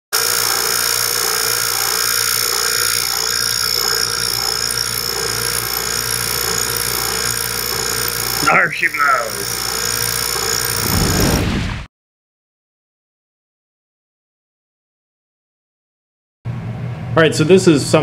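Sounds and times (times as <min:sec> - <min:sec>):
vacuum pump humming and whining: 0:00.1 - 0:11.4.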